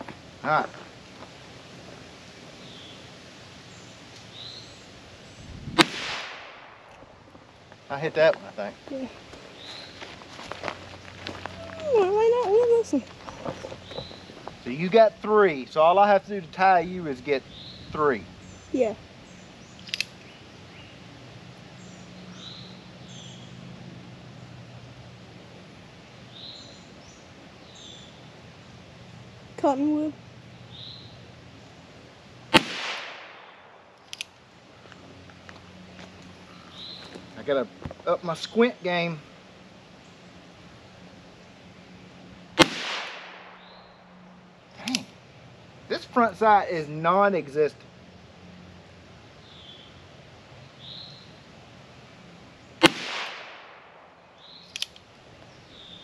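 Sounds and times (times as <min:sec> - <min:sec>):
steady low hum: 0:00.0 - 0:56.0
songbirds whistling: 0:03.7 - 0:05.8, 0:13.2 - 0:14.4, 0:21.7 - 0:23.6, 0:26.1 - 0:28.4, 0:30.6 - 0:31.7, 0:36.5 - 0:37.3, 0:50.7 - 0:51.4, 0:55.4 - 0:56.0
revolver gunshot with echo: 0:05.7 - 0:06.9, 0:32.5 - 0:33.7, 0:42.6 - 0:43.8, 0:52.8 - 0:54.0
sharp click: 0:19.8 - 0:20.2, 0:54.6 - 0:55.0.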